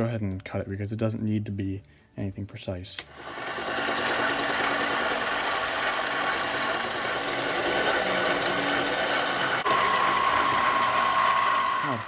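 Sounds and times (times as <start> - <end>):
lathe tool cutting steel: 3.1 - 12.0
metal lathe whining: 3.1 - 12.0.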